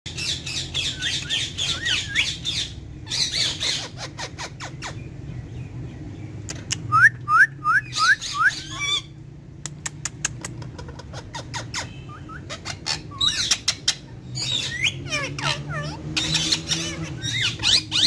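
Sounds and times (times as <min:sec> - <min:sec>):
parakeets squawking and chattering: 0:00.1 - 0:07.0, 0:07.8 - 0:09.4, 0:10.2 - 0:18.0
sharp clicks: 0:06.4 - 0:06.9, 0:09.6 - 0:10.8.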